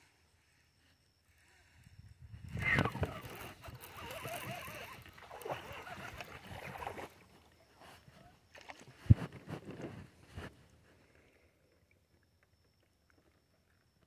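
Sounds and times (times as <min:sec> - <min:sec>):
fishing reel cranking: 0:02.6 - 0:07.1.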